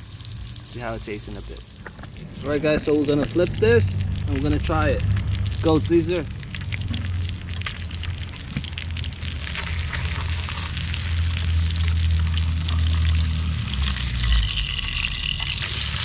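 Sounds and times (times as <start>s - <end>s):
fish sizzling in hot oil: 0.0s - 2.3s, 3.4s - 16.0s
low rumble: 1.8s - 16.0s.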